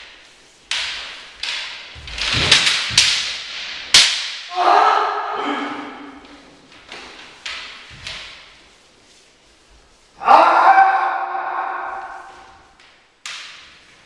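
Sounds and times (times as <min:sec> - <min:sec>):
bamboo swords striking: 0:00.0 - 0:08.5
long held shout: 0:04.5 - 0:06.2, 0:10.2 - 0:12.6.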